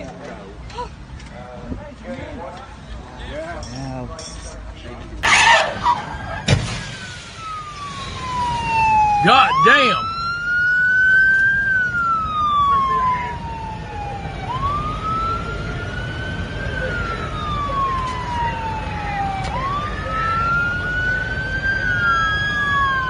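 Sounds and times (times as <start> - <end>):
police siren wailing: 5.2 - 23.0.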